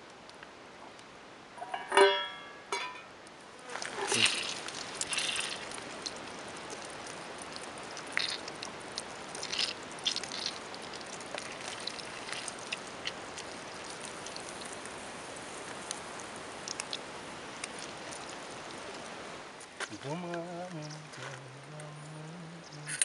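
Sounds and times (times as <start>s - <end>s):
sharp pops and crackles: 3.2s - 22.0s
sausage sizzling in a pan: 3.7s - 19.1s.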